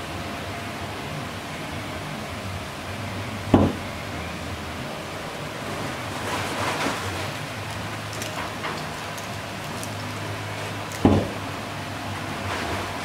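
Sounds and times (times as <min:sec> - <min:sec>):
rustling scrape: 0:05.7 - 0:10.8, 0:12.4 - 0:13.0.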